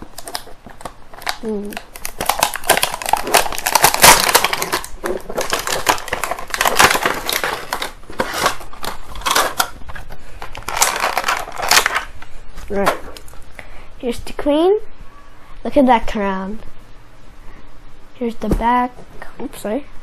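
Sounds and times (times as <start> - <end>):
plastic packaging crinkling: 0.0 - 13.5.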